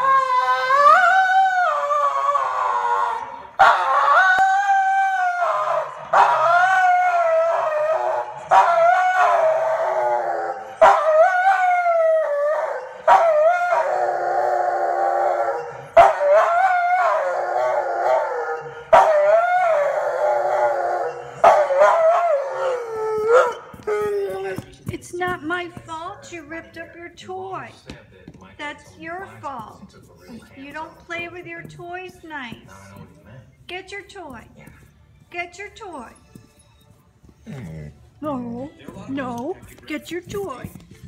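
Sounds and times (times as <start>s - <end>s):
dog howling: 0.0s - 24.8s.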